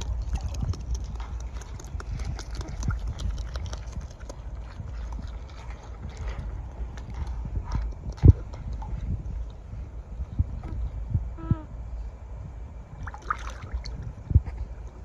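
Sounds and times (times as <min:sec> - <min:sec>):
beaver teeth crunching food: 0:00.0 - 0:09.0.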